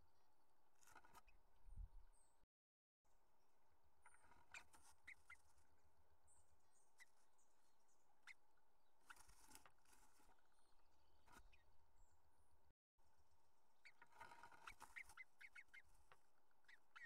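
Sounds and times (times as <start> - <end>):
bird scratching and rustling in nest: 0.7 - 1.4, 4.0 - 6.0, 6.8 - 11.8, 13.2 - 17.0.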